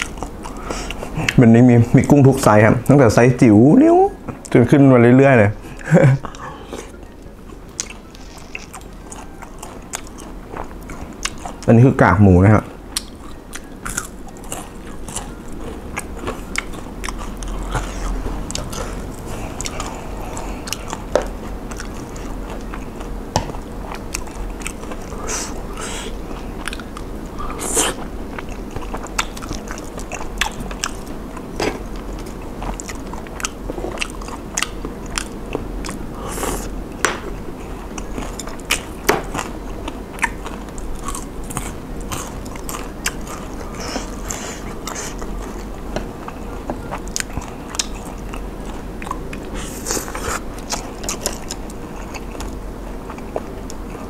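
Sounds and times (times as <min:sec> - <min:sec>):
chewing crunchy food: 0:00.0 - 0:01.4, 0:06.2 - 0:54.0.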